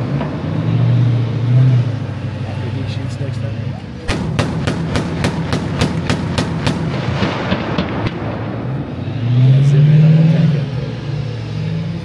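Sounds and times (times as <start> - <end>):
vehicle engine revving: 0.0 - 12.0
autocannon firing: 4.1 - 8.6.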